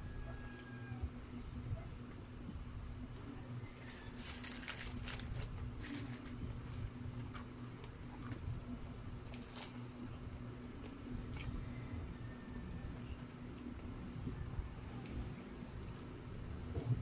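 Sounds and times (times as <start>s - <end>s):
low electrical hum: 0.0s - 17.0s.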